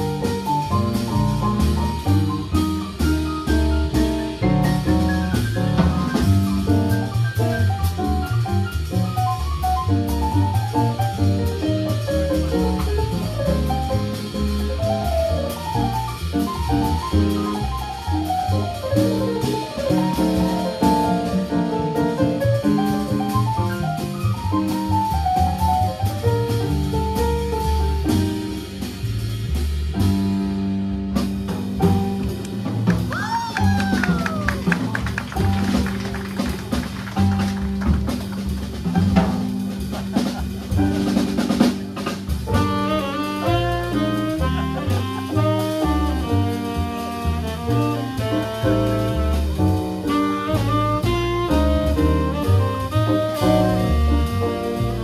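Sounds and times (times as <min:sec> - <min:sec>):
drum kit: 0:00.0 - 0:55.0
jazz keyboard: 0:00.0 - 0:55.0
low bass notes: 0:00.0 - 0:55.0
saxophone melody: 0:42.5 - 0:55.0.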